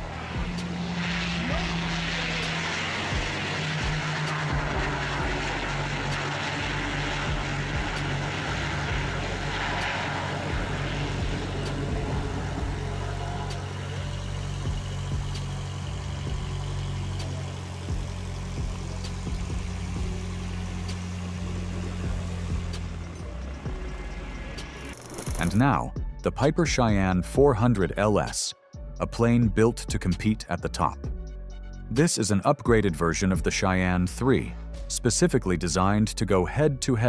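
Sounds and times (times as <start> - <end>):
turboprop engines droning: 0.0 - 36.7.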